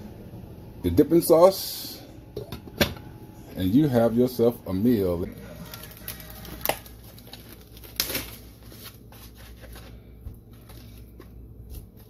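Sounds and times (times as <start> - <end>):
rustling and crinkling: 5.5 - 12.0.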